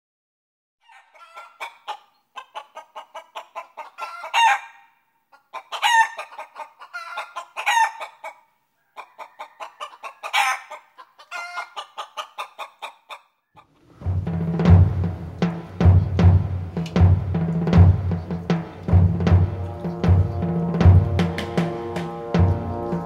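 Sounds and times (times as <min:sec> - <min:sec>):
chickens clucking: 0:00.8 - 0:14.6
chicken drawn-out calls: 0:00.8 - 0:14.7.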